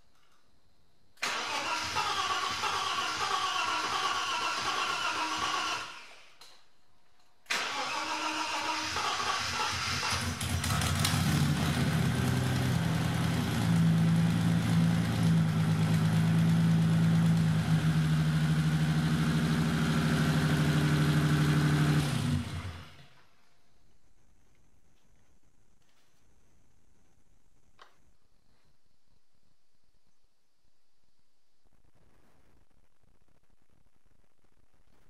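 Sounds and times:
car engine idling: 9.1 - 23.0.

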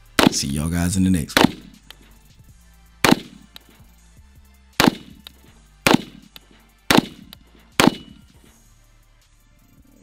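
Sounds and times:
rifle shots with echo: 0.0 - 0.7, 1.3 - 1.9, 3.0 - 3.6, 4.8 - 8.4.

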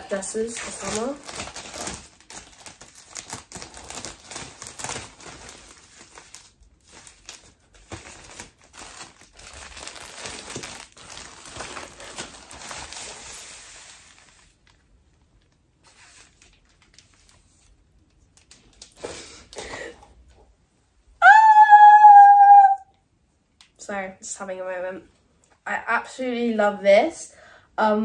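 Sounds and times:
plastic packaging rustling: 0.0 - 19.8.

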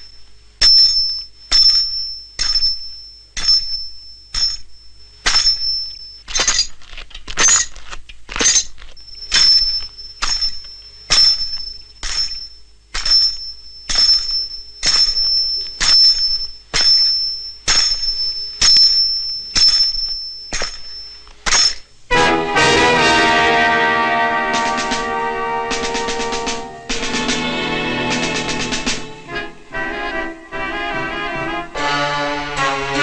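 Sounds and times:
spurs jingling: 9.3 - 21.9.

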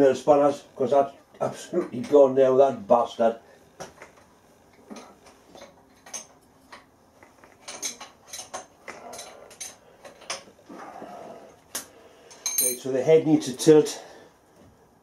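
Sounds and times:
spanner clinking against nuts: 7.5 - 10.5, 12.3 - 12.9.

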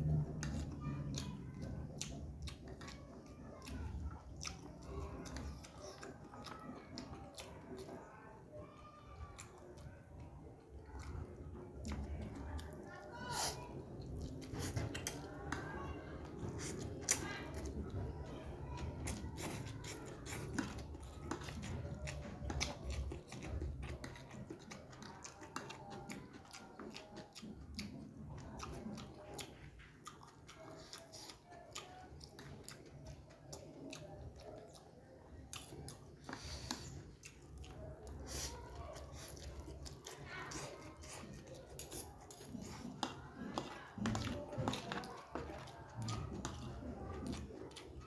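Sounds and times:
wet chewing with smacks: 0.0 - 48.0.

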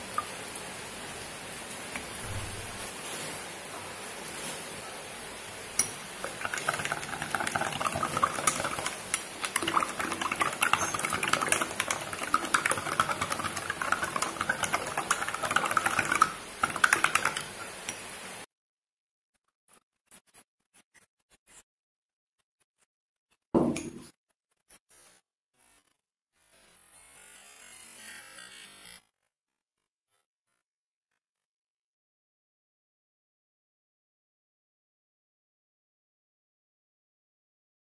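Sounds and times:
spoon clinking in a glass: 8.1 - 12.7.

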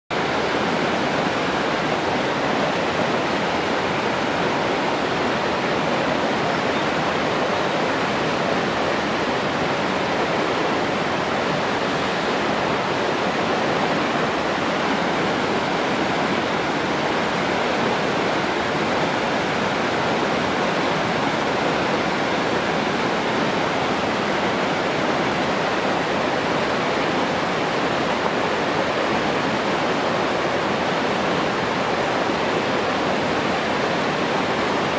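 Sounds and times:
stream rushing over rocks: 0.1 - 34.9.

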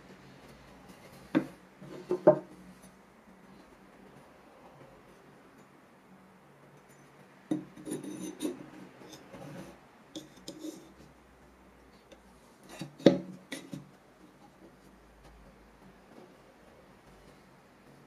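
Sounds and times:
steel scraping and clicking against wood: 6.8 - 11.1, 12.1 - 14.0.

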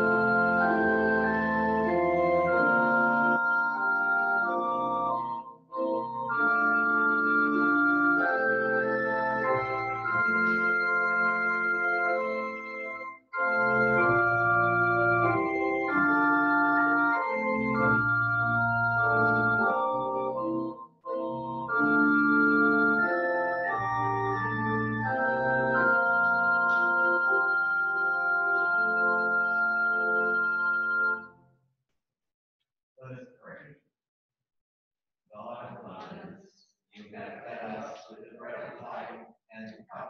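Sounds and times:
organ playing held chords: 0.0 - 31.4.

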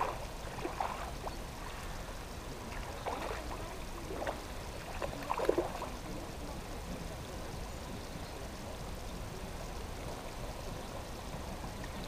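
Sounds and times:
fish splashing in water: 0.0 - 1.9, 2.7 - 6.1.

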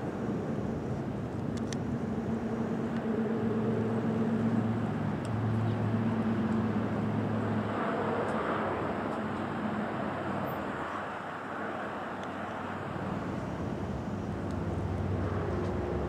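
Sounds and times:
engine humming: 1.1 - 10.7.

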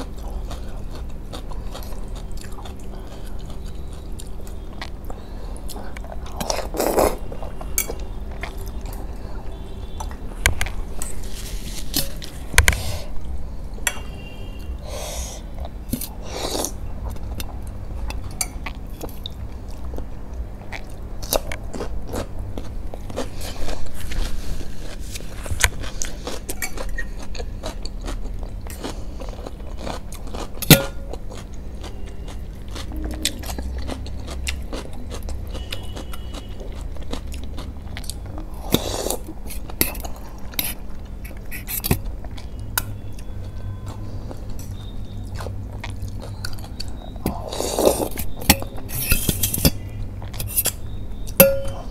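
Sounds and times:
chewing: 0.0 - 11.1, 15.6 - 49.6
fork scraping a glass bowl: 48.0 - 49.8.

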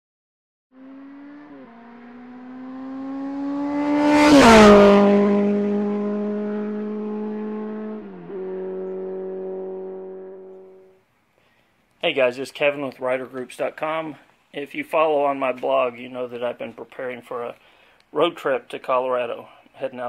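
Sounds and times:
motorcycle engine revving past: 0.7 - 11.0.

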